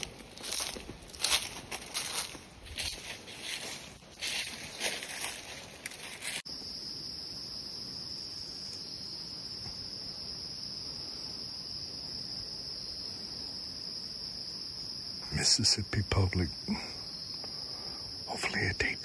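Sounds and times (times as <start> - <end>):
footsteps in dry leaves: 0.0 - 6.5
high-pitched insect chorus: 0.0 - 19.0.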